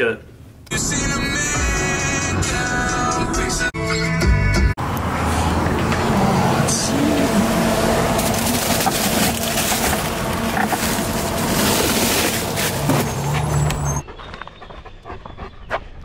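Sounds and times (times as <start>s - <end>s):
machinery humming: 4.8s - 14.0s
bagged ice knocking and rustling: 8.0s - 13.5s.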